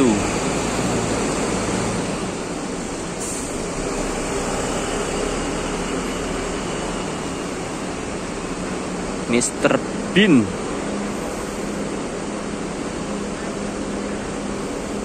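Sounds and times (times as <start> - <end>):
bus engine pulling away: 0.0 - 15.0
short air hiss: 3.2 - 3.6.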